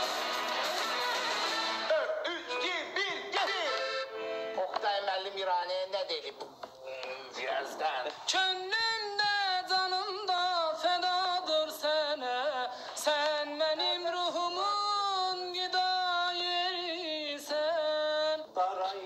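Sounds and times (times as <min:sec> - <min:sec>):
person singing unaccompanied: 0:07.9 - 0:19.0.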